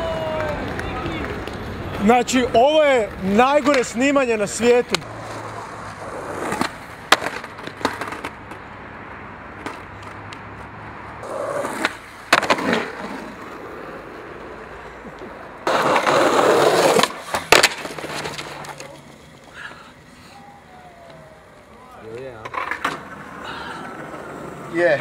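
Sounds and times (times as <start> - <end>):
skateboard rolling on concrete: 0.0 - 25.0
skateboard clacks on ground: 3.1 - 4.1, 4.7 - 8.7, 9.5 - 13.6, 15.0 - 19.5, 21.0 - 24.7
skateboard scraping: 3.2 - 8.6, 9.6 - 25.0.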